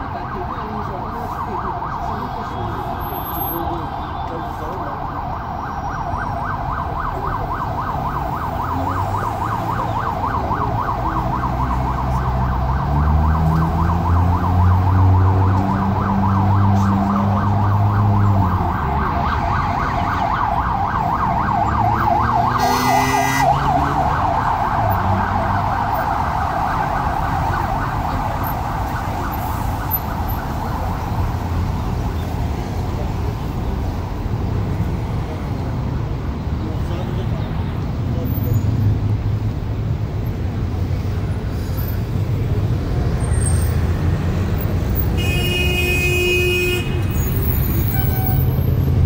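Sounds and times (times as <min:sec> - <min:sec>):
ambulance siren yelping: 0:00.0 - 0:31.8
traffic engines running: 0:00.0 - 0:49.0.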